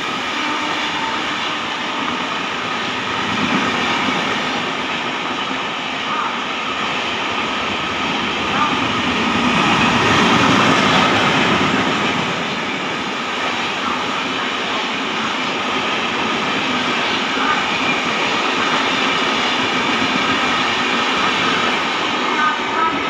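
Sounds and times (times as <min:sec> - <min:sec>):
train wheels running on rails: 0:00.0 - 0:23.0.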